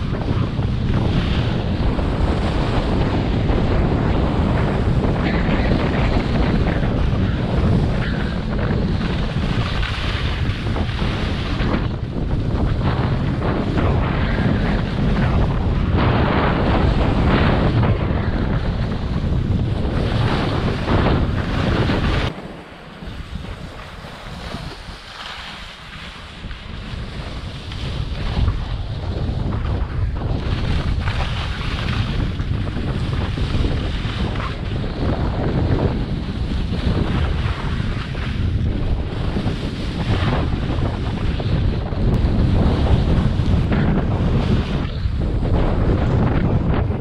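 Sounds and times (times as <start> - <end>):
skis sliding over snow: 0.0 - 46.9
wind rushing over microphone: 0.0 - 47.0
skis hissing over snow: 21.5 - 28.3.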